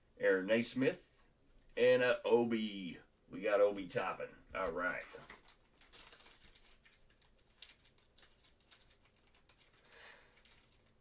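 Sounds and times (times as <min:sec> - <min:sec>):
faint clicks and rustles: 0:04.6 - 0:11.0.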